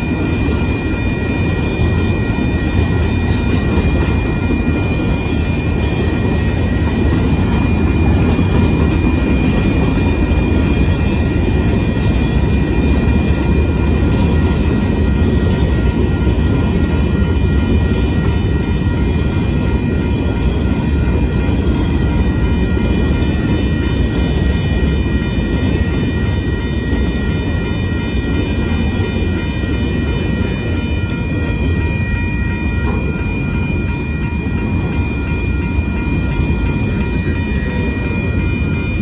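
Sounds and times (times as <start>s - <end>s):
steel wheels rumbling on rail: 0.0s - 39.0s.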